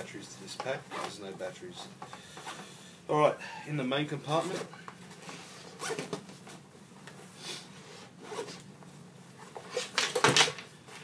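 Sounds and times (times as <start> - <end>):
backpack zipper unzipping: 8.2 - 8.6.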